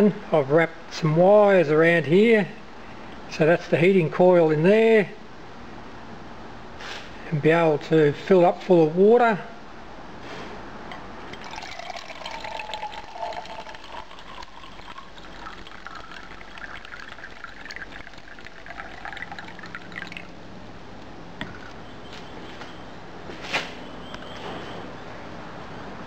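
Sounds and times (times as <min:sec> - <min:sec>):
water pouring into a tin can: 0:11.4 - 0:20.4.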